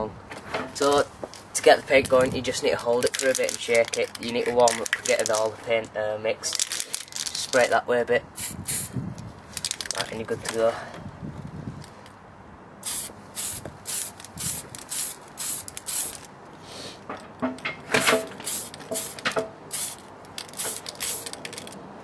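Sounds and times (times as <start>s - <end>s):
spray paint can hissing: 8.4s - 9.0s, 12.8s - 16.3s, 18.0s - 21.6s.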